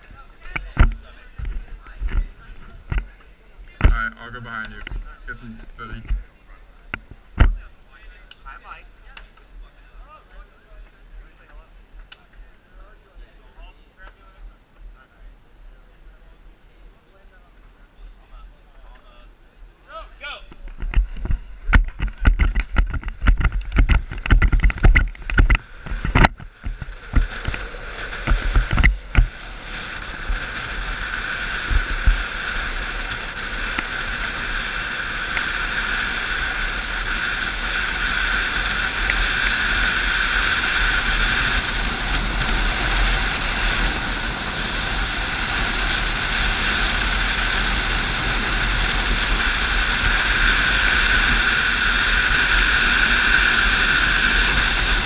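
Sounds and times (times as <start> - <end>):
wheels rolling on asphalt: 0.0 - 19.6, 20.5 - 55.0
wind on microphone: 20.5 - 55.0.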